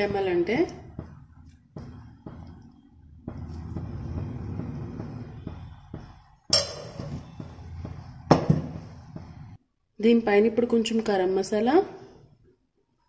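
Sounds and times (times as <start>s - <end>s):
metal ladle clinking on pot: 6.5s - 7.2s.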